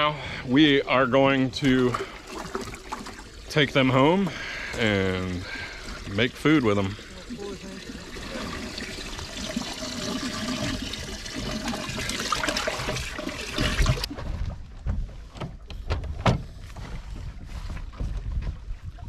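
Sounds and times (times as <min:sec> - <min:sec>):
water trickling and splashing: 0:00.6 - 0:14.1.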